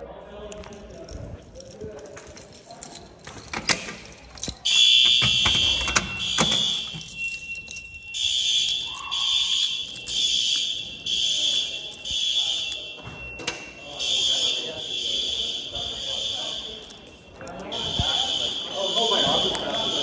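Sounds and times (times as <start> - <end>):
fire alarm pull station clicks: 2.3 - 20.0
high-pitched electronic fire alarm: 4.4 - 20.0.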